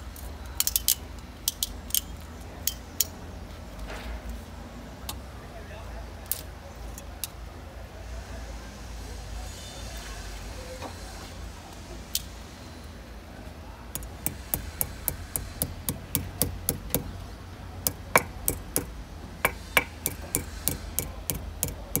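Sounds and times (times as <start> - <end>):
hammer tapping metal buckle: 14.0 - 17.2, 17.9 - 22.0.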